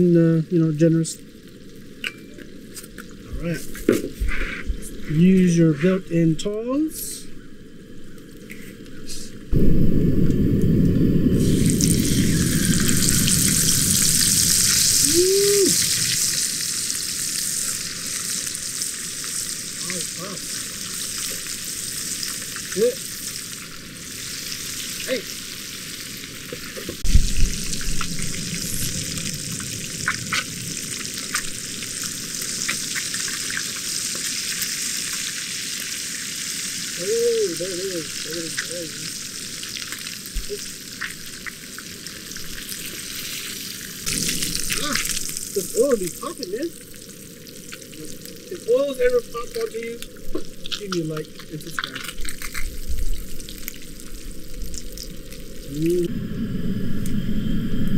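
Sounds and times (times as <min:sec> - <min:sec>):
fish sizzling in a frying pan: 0:11.5 - 0:55.9.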